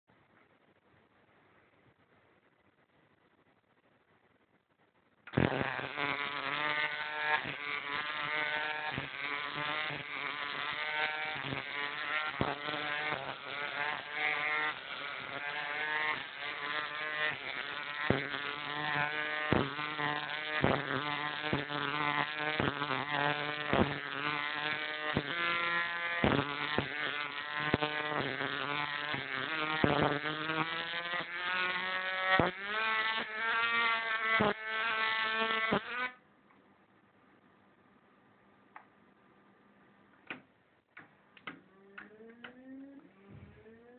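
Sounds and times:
high-voltage arc buzzing: 5.2s - 36.2s
sharp arc cracks: 5.3s - 36.2s.

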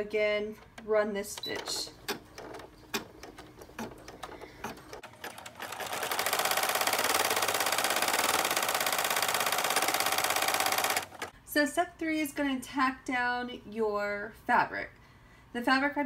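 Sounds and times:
embroidery machine stitching: 0.7s - 11.3s.

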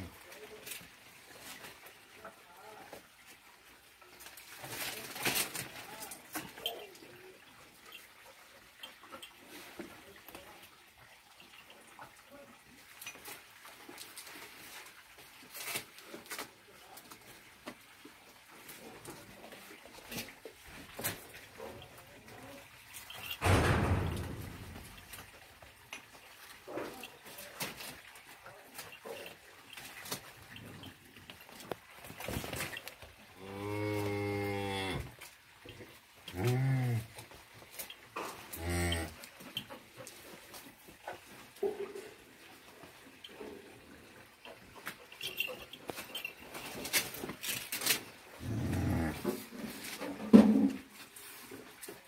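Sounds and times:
animals scuffling on shed floor: 0.0s - 52.0s
calf mooing: 33.4s - 35.2s, 38.5s - 39.2s, 48.4s - 49.2s
faint knocks and shuffling: 35.0s - 52.0s.

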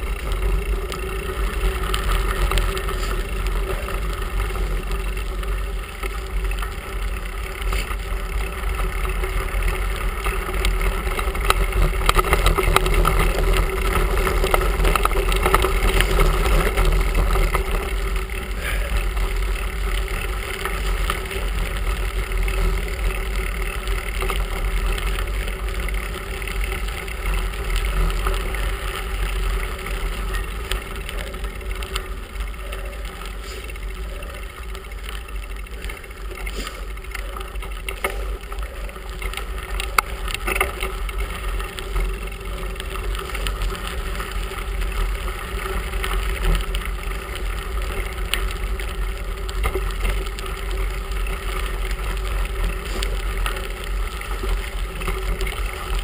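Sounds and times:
tyres rumbling on gravel: 0.0s - 56.0s.

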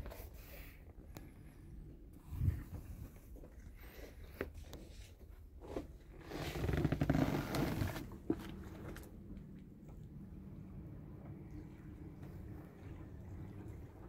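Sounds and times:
camera scraping leather upholstery: 5.6s - 8.5s.

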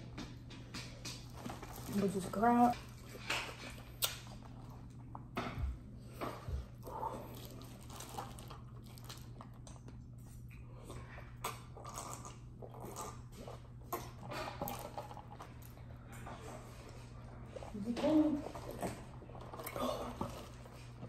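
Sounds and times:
steady low hum: 0.0s - 21.0s
person chewing food: 2.8s - 17.6s, 18.6s - 21.0s
plastic crinkling: 7.3s - 9.8s.

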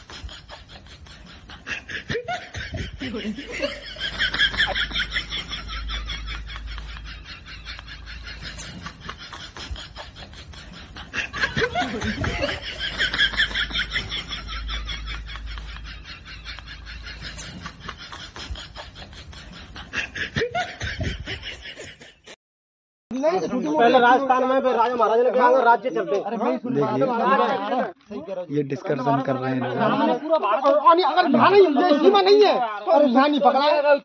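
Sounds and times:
men laughing and calling out: 0.0s - 18.5s, 28.8s - 34.0s.

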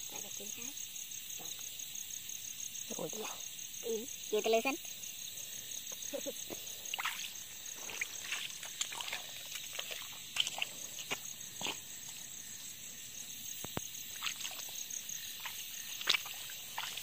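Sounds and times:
night insects trilling: 0.0s - 17.0s
water splashing and grass rustling: 6.1s - 17.0s.

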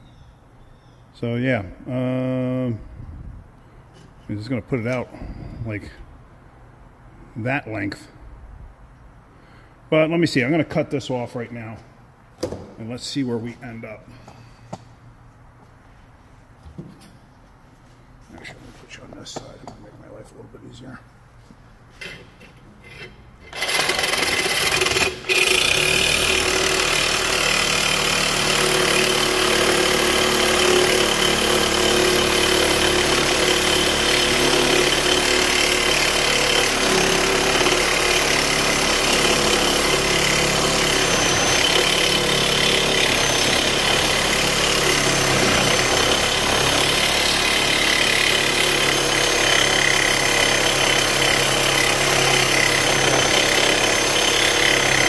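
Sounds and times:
reciprocating saw cutting steel pipe: 22.9s - 55.0s.

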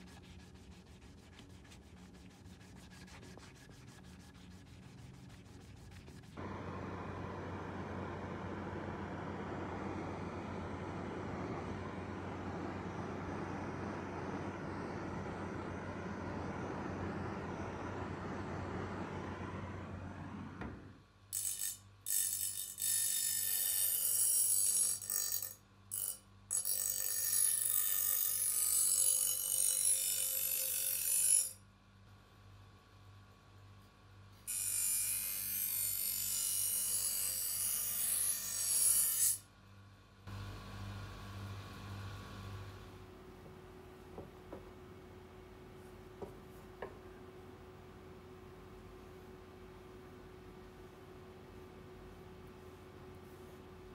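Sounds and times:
knife grinding on wire wheel: 21.4s - 27.6s.

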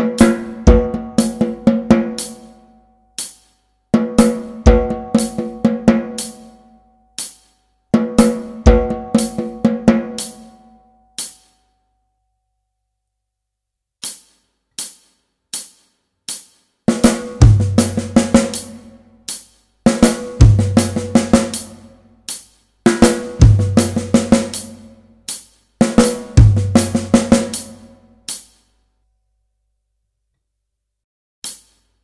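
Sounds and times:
bass drum kick: 0.0s - 2.0s, 17.2s - 18.5s, 20.0s - 21.6s, 23.0s - 24.4s, 26.0s - 27.5s
snare drum fill: 14.0s - 28.6s, 31.4s - 32.0s.

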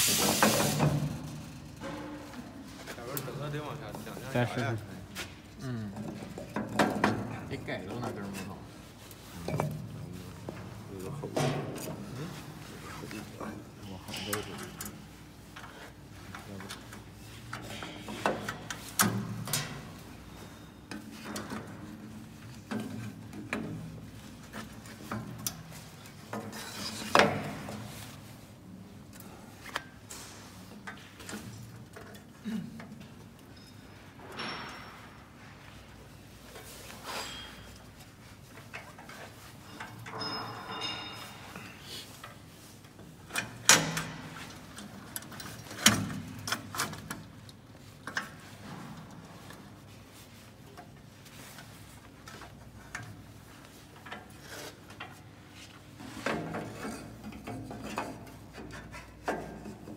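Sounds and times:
metal plates knocking and clunking: 1.8s - 2.5s, 6.0s - 7.7s, 9.4s - 10.6s, 38.7s - 41.8s, 55.8s - 59.9s.

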